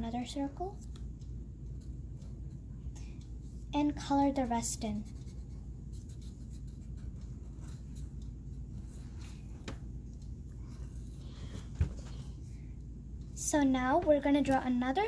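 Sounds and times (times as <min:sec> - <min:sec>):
low steady hum: 0:00.0 - 0:15.0
markers scratching on paper: 0:04.8 - 0:09.5.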